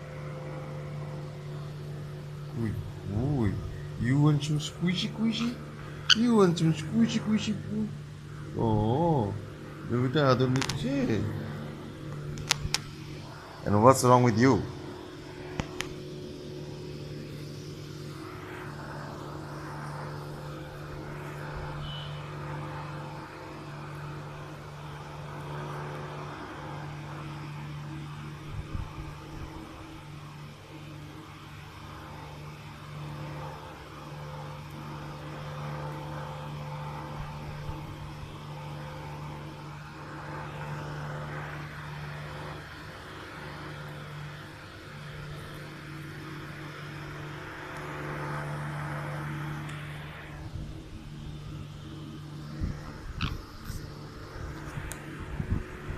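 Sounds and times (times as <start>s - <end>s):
motor humming: 0.0s - 55.9s
high chirp: 5.4s - 6.5s.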